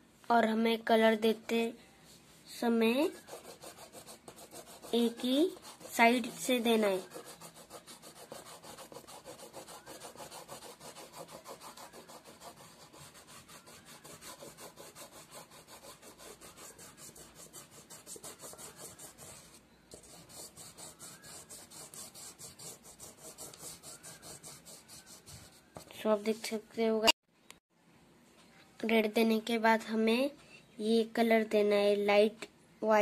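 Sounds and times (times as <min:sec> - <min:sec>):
oil pastel scraping on paper: 0:03.1 - 0:26.5.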